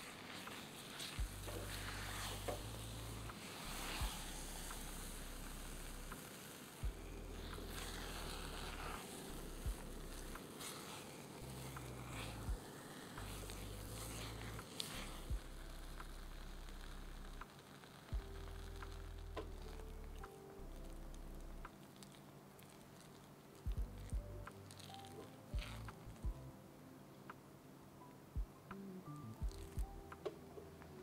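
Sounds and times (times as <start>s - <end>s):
spatula scraping paste in pot: 0.0s - 6.0s, 7.0s - 15.3s
hot paste crackling: 0.0s - 26.5s, 29.2s - 30.1s
bass background music: 1.0s - 6.2s, 6.8s - 10.5s, 11.4s - 12.6s, 13.2s - 21.7s, 23.6s - 26.6s, 28.4s - 31.0s.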